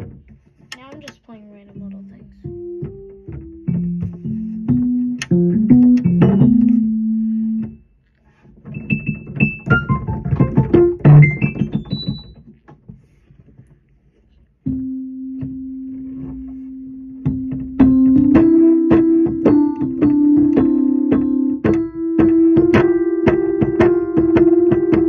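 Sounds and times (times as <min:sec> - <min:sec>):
electric keyboard playing: 0:02.4 - 0:07.8, 0:08.8 - 0:12.4, 0:14.7 - 0:25.0.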